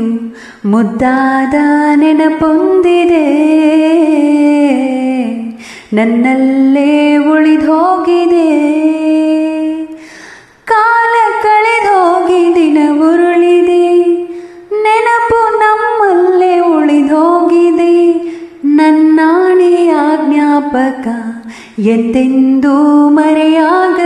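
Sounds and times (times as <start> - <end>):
woman singing wordless melody: 0.0 - 24.0.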